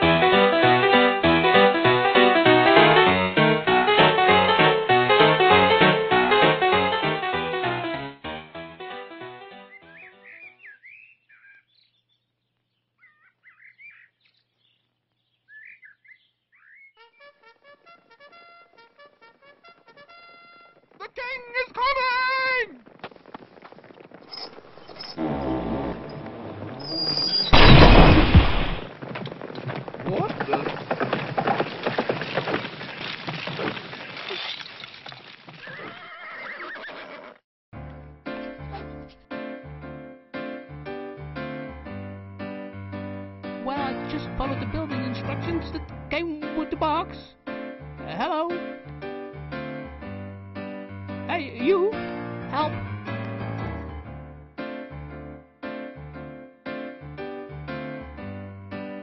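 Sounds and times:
piano music: 0:00.0 - 0:10.5, 0:37.8 - 0:59.0
songbird chirping: 0:09.6 - 0:17.4, 0:24.3 - 0:28.8
horse hooves clattering: 0:17.6 - 0:37.1
horse whinnying: 0:24.3 - 0:27.6, 0:35.5 - 0:37.4.

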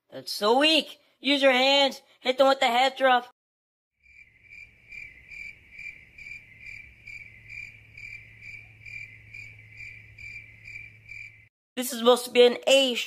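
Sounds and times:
cricket chirping: 0:04.0 - 0:11.5.

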